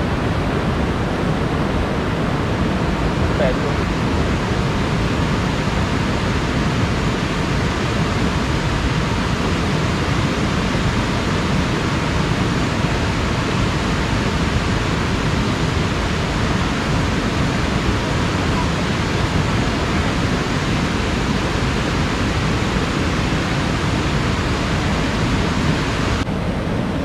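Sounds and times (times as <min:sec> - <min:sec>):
river rushing over stones: 0:00.0 - 0:26.8.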